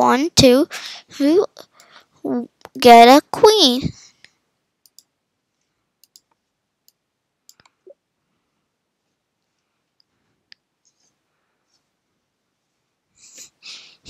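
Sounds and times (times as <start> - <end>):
faint computer clicks: 4.2 - 5.1, 6.0 - 7.8.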